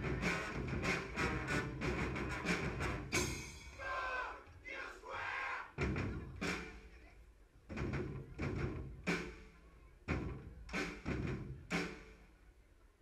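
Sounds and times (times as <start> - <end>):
bass drum and cymbal hits: 0.0 - 3.8.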